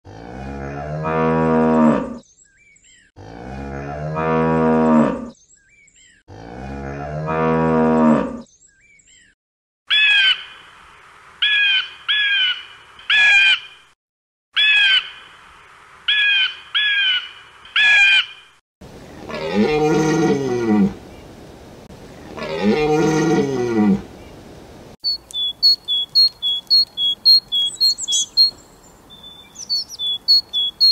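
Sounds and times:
cows mooing: 0.1s - 2.2s, 3.2s - 5.3s, 6.3s - 8.4s, 19.3s - 21.0s, 22.3s - 24.1s
bird of prey calling: 25.0s - 30.9s
faint bird chirps: 25.0s - 30.9s.

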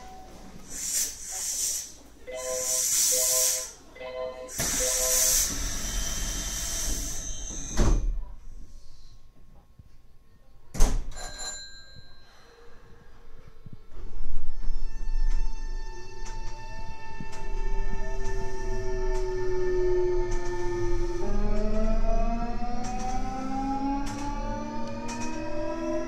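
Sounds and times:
loud hissing air: 0.7s - 2.0s, 2.6s - 3.8s, 4.5s - 8.0s
low steady train rumble: 11.5s - 26.0s.

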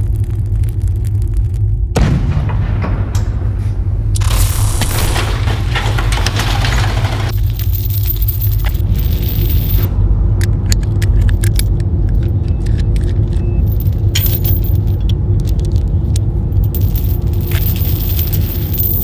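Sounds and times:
steady low rumble: 0.0s - 19.0s
steel chain clinking and rattling: 4.2s - 9.9s, 13.3s - 19.0s.

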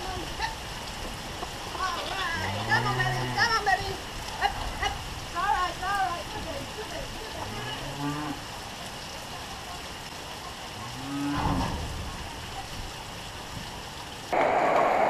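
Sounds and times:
steady rain: 0.0s - 15.0s
cattle mooing: 1.9s - 3.7s, 7.4s - 8.4s, 10.8s - 11.8s.

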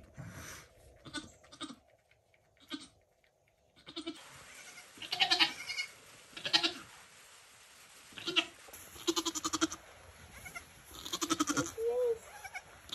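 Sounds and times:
goat bleating: 1.0s - 1.8s, 2.6s - 3.0s, 3.8s - 6.8s, 8.2s - 9.8s, 10.4s - 12.9s.

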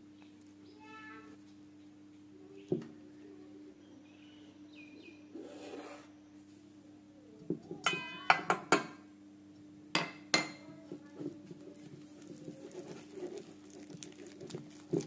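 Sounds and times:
metal bowl clinking: 7.8s - 8.6s.

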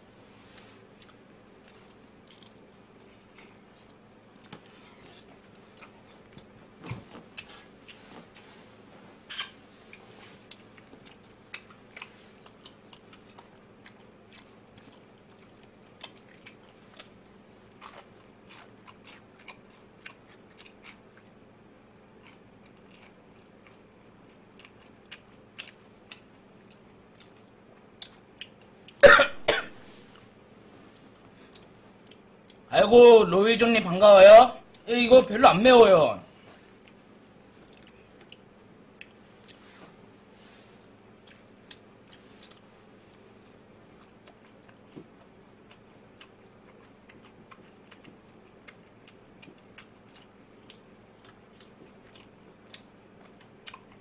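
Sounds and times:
faint steady hum: 0.0s - 54.0s
chewing crispy fried chicken: 0.6s - 8.7s, 9.4s - 29.0s, 31.3s - 32.7s, 35.7s - 54.0s.

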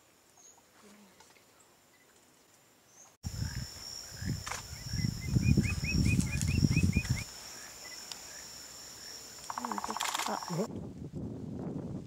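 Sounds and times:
high insect drone: 3.2s - 10.7s
woodpecker call notes: 3.3s - 10.7s.

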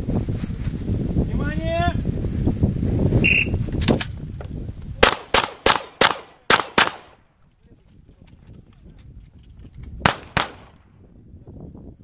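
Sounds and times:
shotgun shots with echo: 5.0s - 7.2s, 10.0s - 10.8s.

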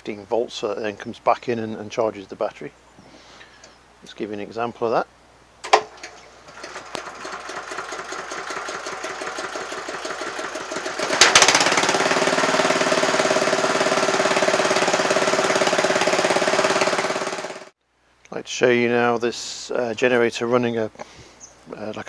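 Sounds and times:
starter motor cranking engine: 5.6s - 17.8s
engine running steadily: 6.5s - 17.7s
engine firing bang: 11.0s - 14.0s.

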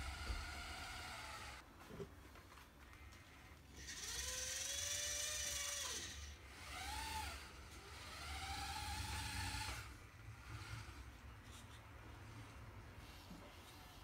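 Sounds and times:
electric motor and gears whining: 0.0s - 1.6s, 3.8s - 11.2s.

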